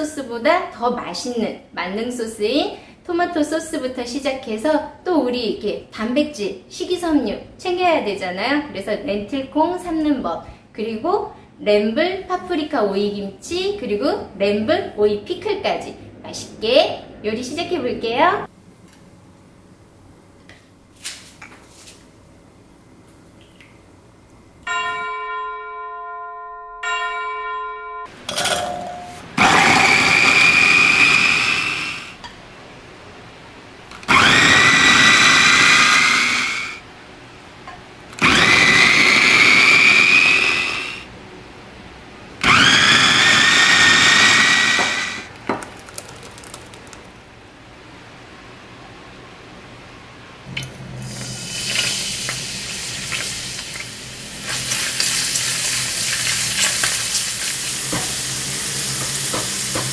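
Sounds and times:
electric food chopper whining: 0:29.4 - 0:32.2, 0:33.9 - 0:36.8, 0:38.1 - 0:41.1, 0:42.4 - 0:47.0.

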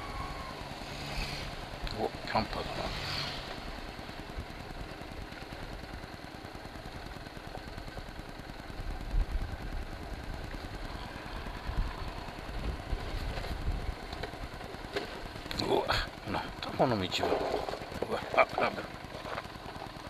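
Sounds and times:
motorcycle engine running: 0:00.0 - 0:20.0.

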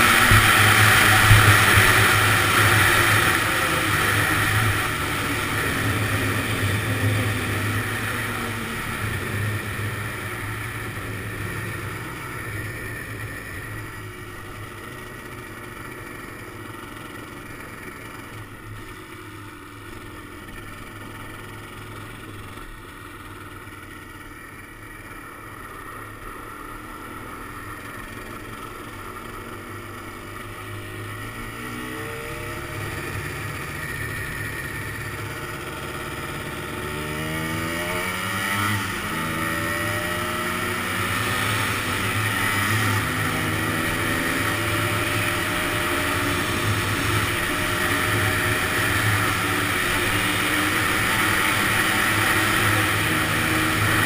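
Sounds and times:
two-stroke engine revving: 0:00.0 - 0:54.0.

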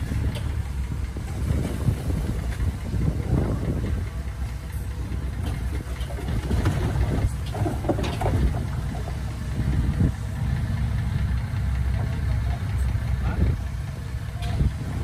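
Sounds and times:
earthmover diesel engine running: 0:00.0 - 0:15.0
clanks: 0:00.1 - 0:10.6.

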